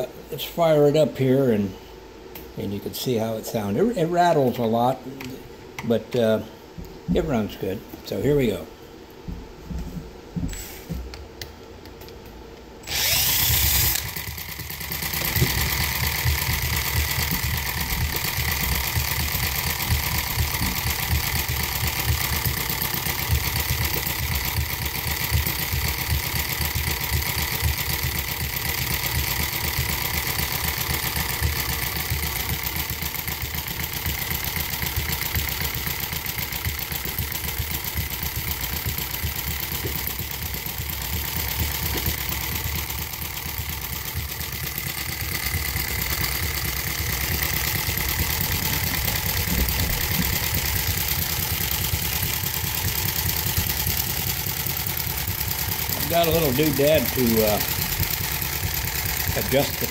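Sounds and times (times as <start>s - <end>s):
small twin engine running with rattle: 12.8s - 59.9s.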